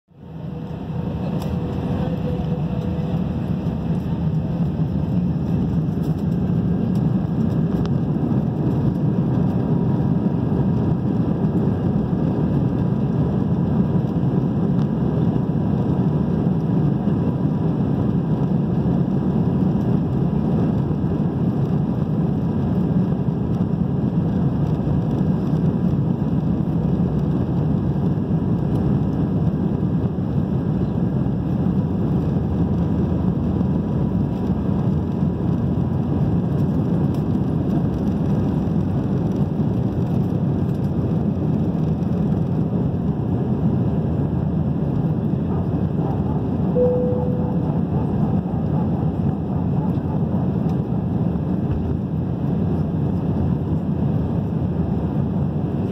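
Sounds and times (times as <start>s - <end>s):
jet engines roaring in cabin: 0.1s - 55.9s
runway rumble: 0.1s - 55.9s
faint steady whine: 46.7s - 48.6s.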